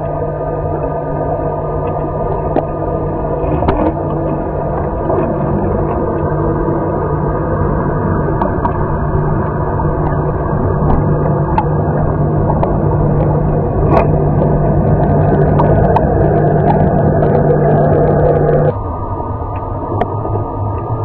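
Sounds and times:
pool vacuum motor hum: 0:00.0 - 0:21.0.

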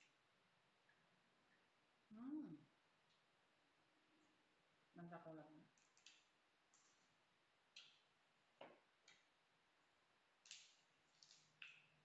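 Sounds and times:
green leaves snapping and tearing: 0:10.4 - 0:11.8.

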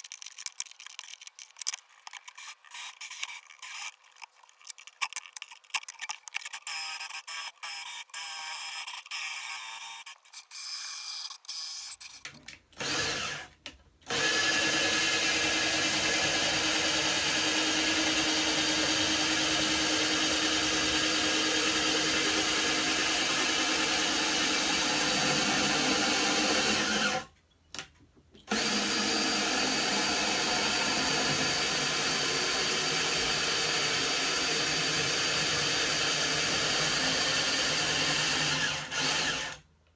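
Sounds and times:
circular saw running: 0:14.1 - 0:27.2, 0:28.5 - 0:39.5.

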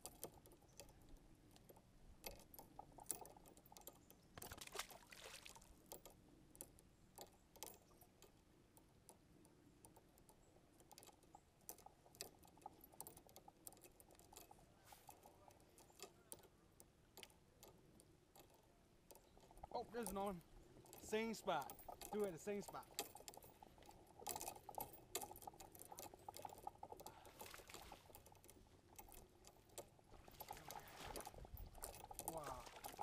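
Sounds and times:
tackle clicks and knocks: 0:00.0 - 0:33.0
fish splash: 0:04.6 - 0:05.6.

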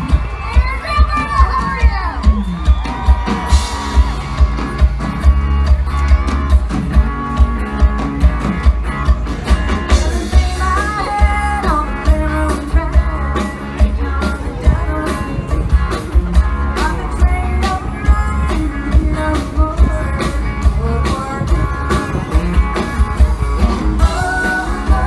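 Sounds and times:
drum beat: 0:00.0 - 0:10.5
bass: 0:00.0 - 0:25.0
electric guitar: 0:00.0 - 0:25.0
person singing: 0:10.0 - 0:22.9, 0:23.9 - 0:25.0.

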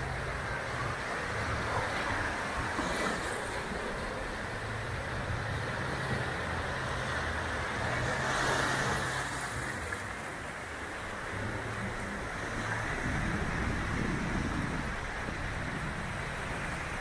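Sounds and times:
low engine hum: 0:00.0 - 0:17.0.

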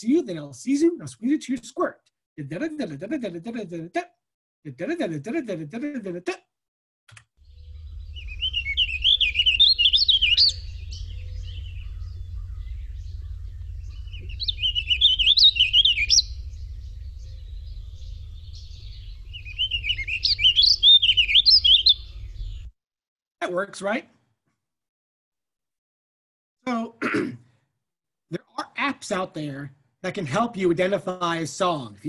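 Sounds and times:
bird warbling song: 0:07.4 - 0:22.7
steady low hum: 0:07.5 - 0:21.1.

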